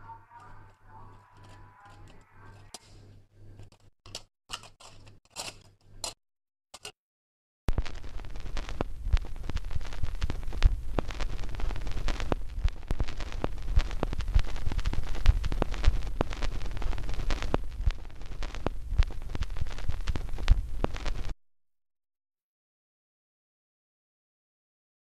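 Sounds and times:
irregular crackling and clicking: 0.3 - 6.2, 7.7 - 21.4
low rumble: 7.7 - 20.9.

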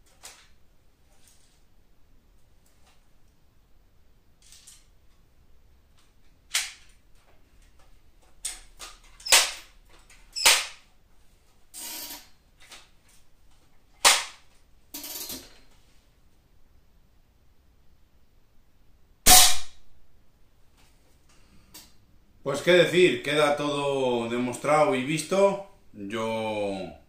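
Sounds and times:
air rifle shots cracking: 19.3 - 19.8.

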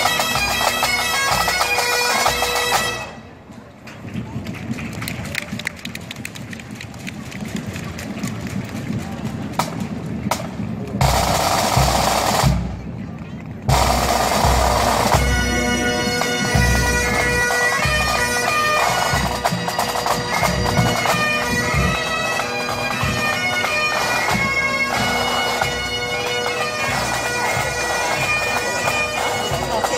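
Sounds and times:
bagpipes playing a tune: 0.0 - 3.2, 13.7 - 29.9
drums: 3.8 - 29.9.

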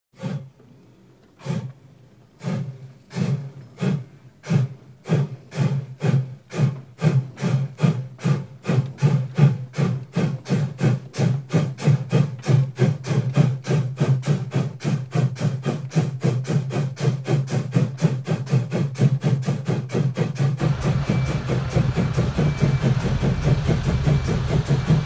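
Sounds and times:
steam locomotive chuffing: 0.2 - 0.6, 1.4 - 25.0.

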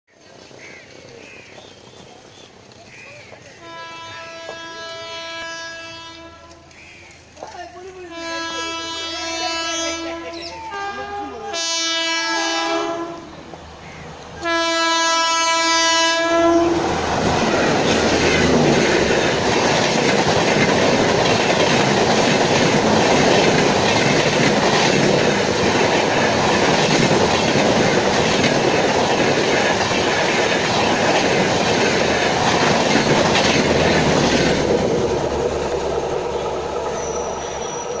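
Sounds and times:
train wheels roaring on rails: 0.1 - 38.0
train horn blasts: 3.6 - 6.7, 8.0 - 13.3, 14.4 - 17.0.

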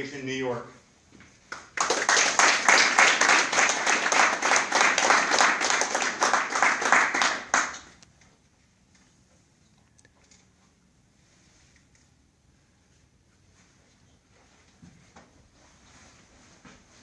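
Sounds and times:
group applauding: 1.5 - 8.0.

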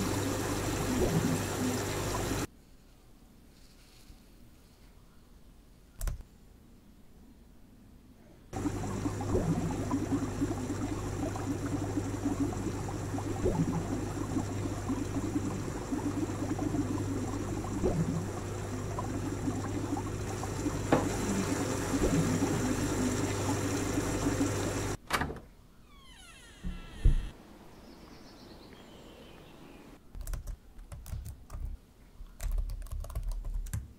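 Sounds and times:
aquarium water bubbling: 0.0 - 2.5, 8.5 - 25.0
low pump hum: 0.0 - 2.5, 8.5 - 25.0.

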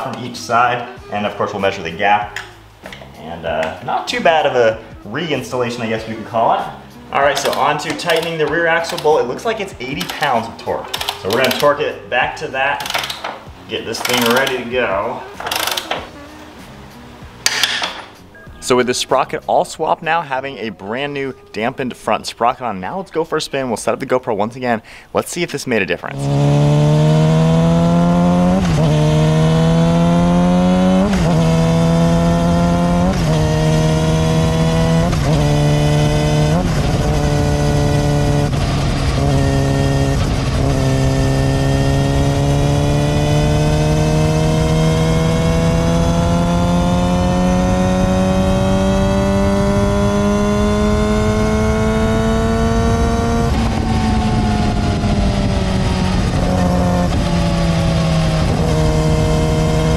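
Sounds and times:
motorcycle engine revving: 6.8 - 18.2, 26.1 - 59.9
drive chain hum: 7.3 - 11.8, 12.7 - 14.7, 15.4 - 16.1.

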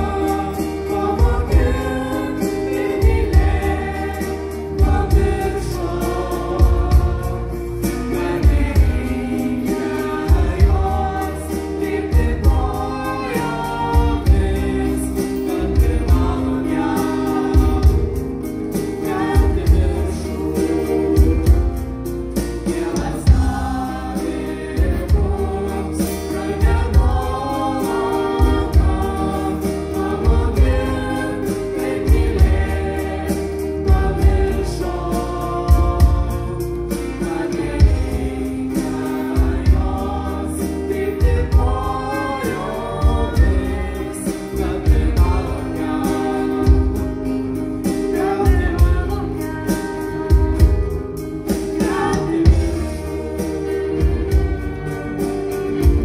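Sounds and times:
live rock band playing: 0.0 - 56.0
voices singing together: 0.0 - 56.0.

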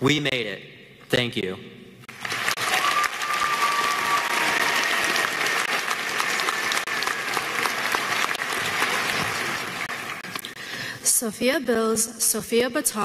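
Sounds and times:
crowd applauding: 2.1 - 10.6.

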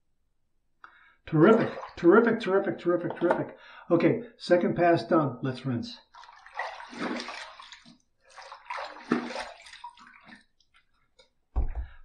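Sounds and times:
water dripping: 0.9 - 2.2, 6.1 - 11.4
water splashing on face: 1.6 - 2.0, 6.1 - 10.8
low thump: 11.6 - 12.0.

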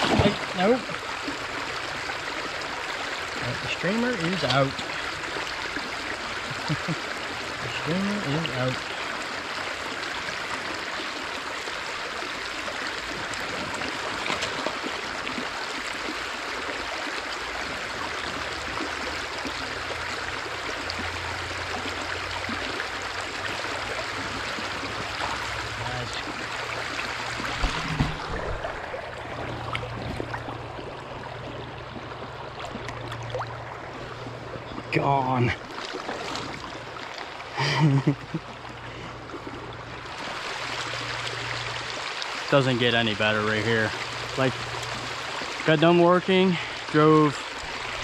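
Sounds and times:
stream rushing over rocks: 0.0 - 31.4
sharp knocks: 27.5 - 28.7.

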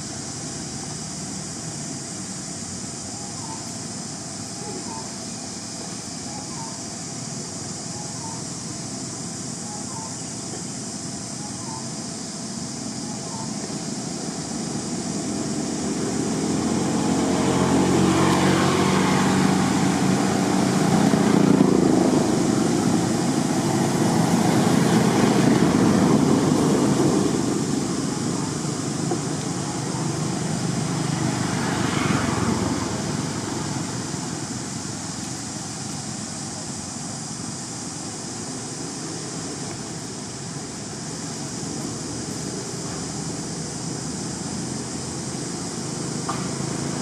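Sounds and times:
vehicle engine passing by: 13.8 - 36.2.

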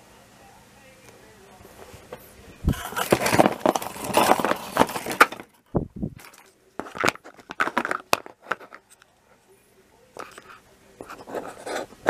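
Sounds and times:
cardboard packaging rustling: 1.8 - 8.9.

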